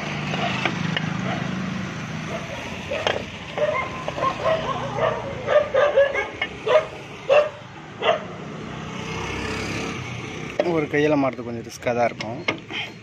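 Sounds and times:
dog barking and yipping: 0.3s - 1.6s, 2.2s - 8.4s.

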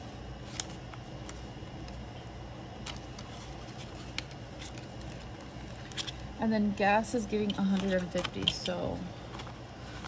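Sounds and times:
low background hum: 0.0s - 10.0s
banknotes being counted: 7.1s - 8.9s.

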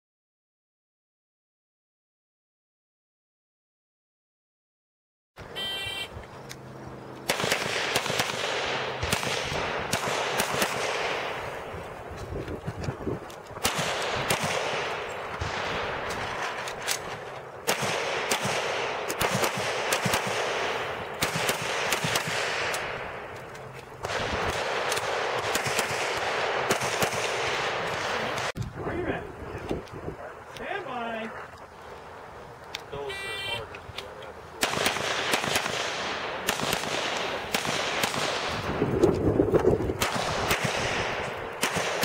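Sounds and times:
steady rushing hiss: 5.4s - 42.0s
pistol shots: 7.2s - 11.7s, 13.6s - 23.4s, 24.0s - 28.5s, 34.6s - 38.8s, 40.0s - 42.0s.

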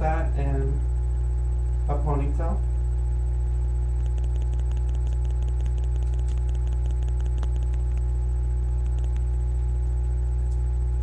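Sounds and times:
low electrical hum: 0.0s - 11.0s
faint rapid crackling clicks: 4.0s - 8.1s, 8.7s - 9.3s.

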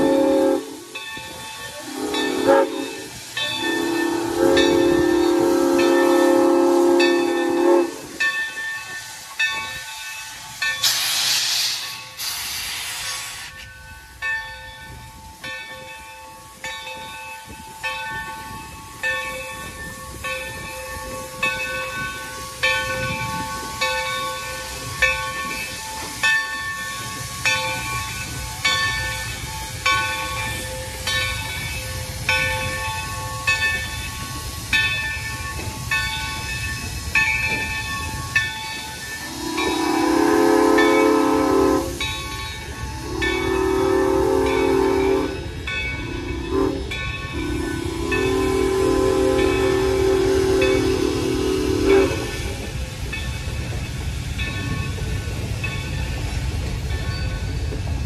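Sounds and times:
train chime whistle blast: 0.0s - 8.3s, 39.1s - 52.6s
locomotive bell ringing: 0.0s - 11.1s, 13.5s - 58.0s
steam hissing: 0.0s - 58.0s
train rumbling: 0.0s - 58.0s.

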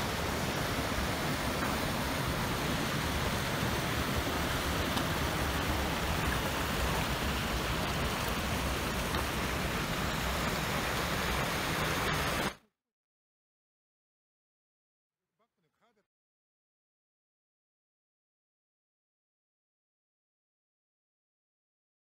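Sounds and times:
rushing mountain stream: 0.0s - 12.6s.

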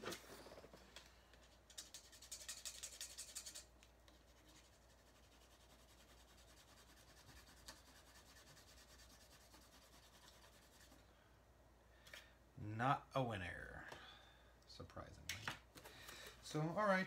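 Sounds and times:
scratching a scratch-off card: 1.7s - 11.0s.

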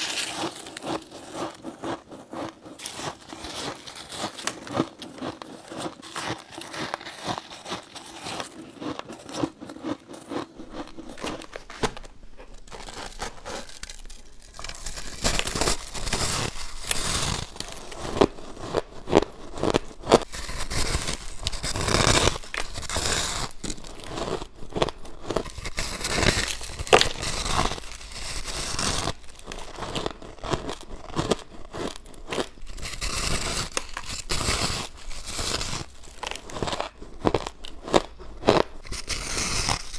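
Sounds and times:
chewing crushed ice: 0.0s - 39.9s
biting shaved ice: 12.6s - 39.9s.

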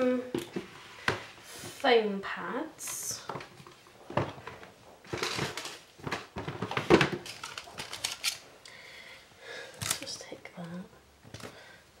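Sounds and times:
rustling craft supplies: 2.8s - 8.6s.

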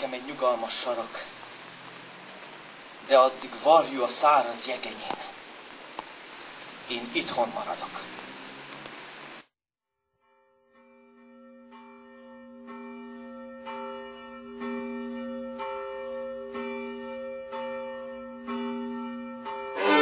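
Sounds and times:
church bell tolling: 10.3s - 20.0s.

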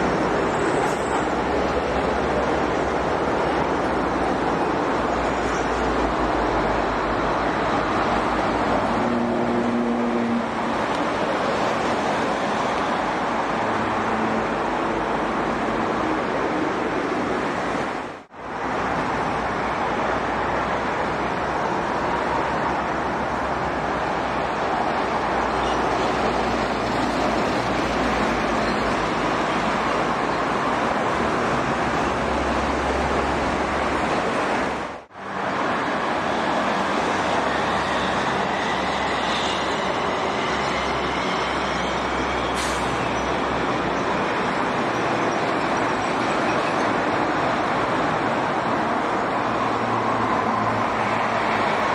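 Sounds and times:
dense highway traffic: 0.0s - 51.9s.

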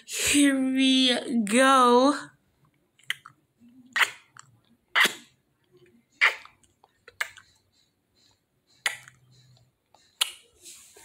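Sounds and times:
wet mouth smacks: 3.0s - 5.3s, 8.8s - 9.2s, 10.2s - 10.4s.

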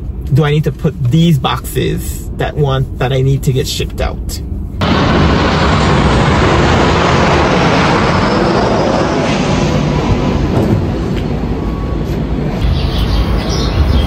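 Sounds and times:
vehicle rushing noise: 4.8s - 14.0s.

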